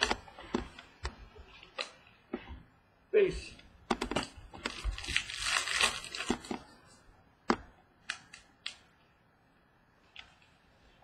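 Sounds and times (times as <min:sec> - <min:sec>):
wrapper crinkling and tearing: 0:04.2 - 0:06.6.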